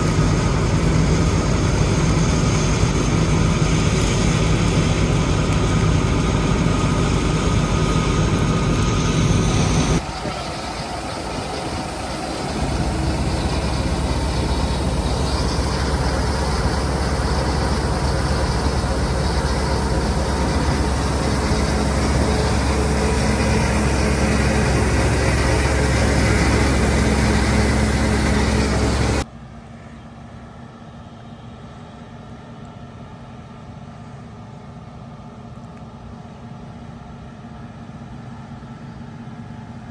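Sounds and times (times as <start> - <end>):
unloading auger discharging grain: 0.0 - 29.3
combine harvester running: 0.0 - 39.9.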